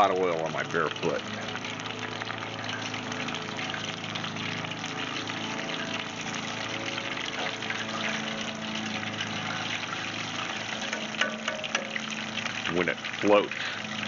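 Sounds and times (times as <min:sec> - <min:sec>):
fish deep-frying in oil: 0:00.0 - 0:14.0.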